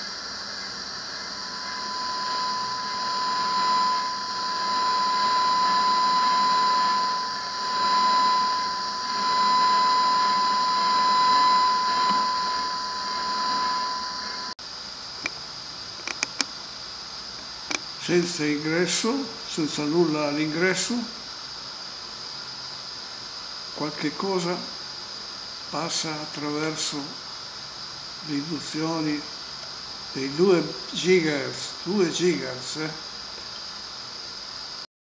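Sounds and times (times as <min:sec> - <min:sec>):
hiss: 0:00.0 - 0:02.5, 0:14.6 - 0:34.9
steady high tone: 0:00.0 - 0:14.6
clicks: 0:16.1 - 0:16.5.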